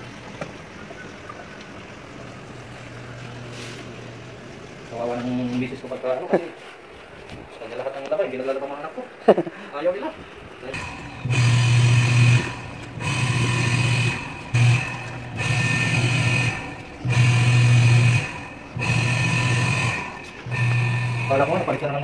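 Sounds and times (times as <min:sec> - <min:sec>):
washing machine motor humming: 0:10.6 - 0:22.0.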